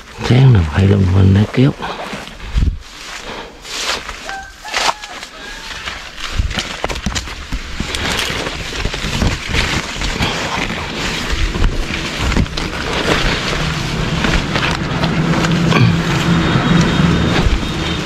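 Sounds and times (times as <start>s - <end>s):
camera rustling against leaves: 0.0s - 18.0s
low steady hum: 5.8s - 18.0s.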